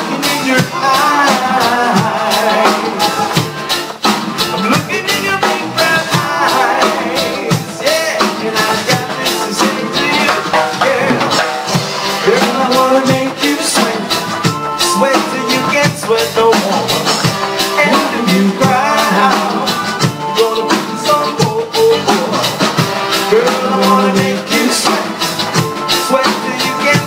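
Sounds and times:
drum kit beat: 0.0s - 27.0s
live band playing upbeat song: 0.0s - 27.0s
melodic lead line: 0.0s - 27.0s.

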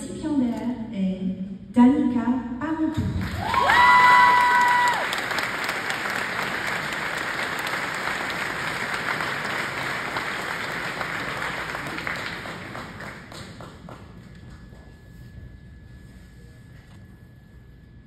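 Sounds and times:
audience applauding: 3.2s - 14.9s.

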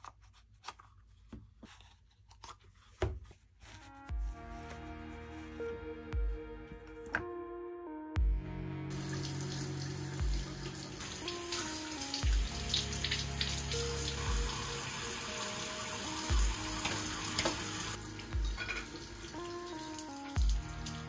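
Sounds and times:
cloth rinsed by hand: 8.9s - 21.0s
tap running into sink: 16.1s - 21.0s.

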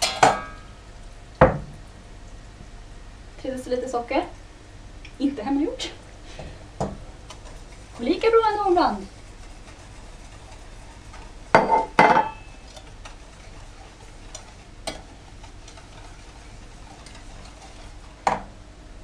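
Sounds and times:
whisk stirring in pan: 5.4s - 18.6s
metal cup clinking on saucepan: 11.6s - 12.5s.

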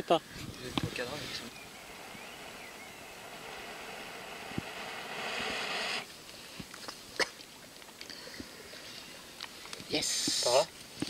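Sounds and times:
breath blowing into tinder: 0.3s - 6.2s.

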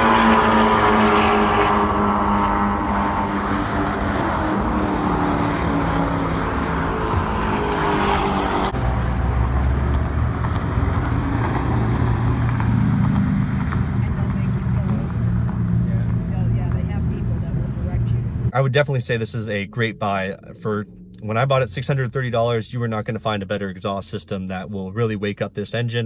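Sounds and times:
car engine passing by: 0.0s - 20.3s
low car engine rolling slowly: 1.6s - 25.4s.

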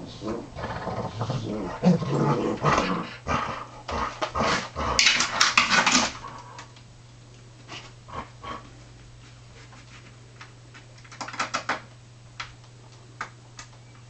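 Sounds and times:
dogs growling and snarling: 0.0s - 6.6s, 8.1s - 8.7s.

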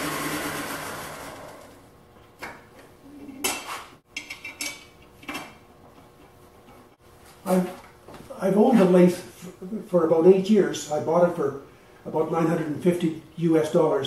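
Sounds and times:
lathe motor whirring down: 0.0s - 1.9s.

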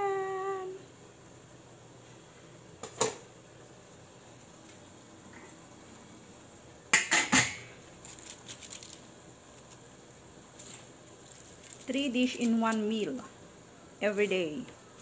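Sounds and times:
pot lid clanking on cookware: 7.0s - 7.7s.

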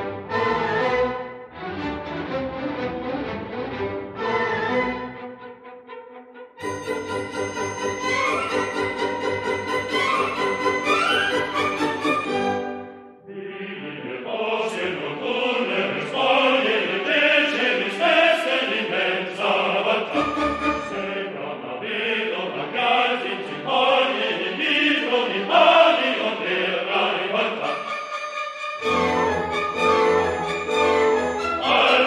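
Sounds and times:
choir singing: 6.6s - 32.0s.

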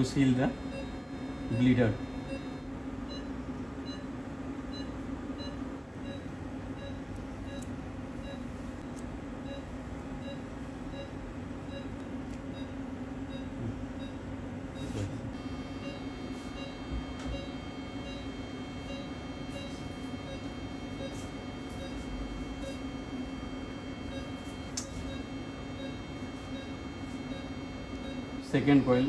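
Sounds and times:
steady high tone: 0.0s - 2.7s
medical equipment beeps: 0.0s - 29.0s
steady low hum: 0.0s - 29.0s.

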